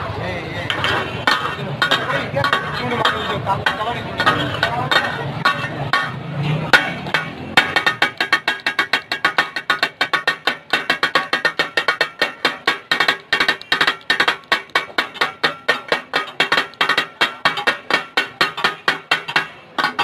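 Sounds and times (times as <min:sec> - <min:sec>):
metal spatulas clanking on griddle: 0:00.6 - 0:20.0.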